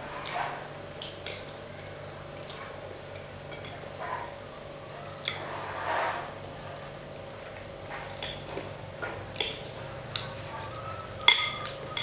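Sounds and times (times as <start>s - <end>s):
faint steady hum: 0.0s - 12.0s
cutlery clinking on a ceramic plate: 11.3s - 12.0s.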